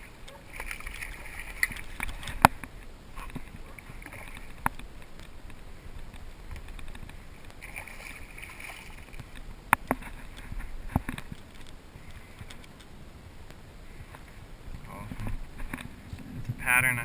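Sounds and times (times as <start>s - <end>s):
water and wind noise: 0.0s - 17.0s.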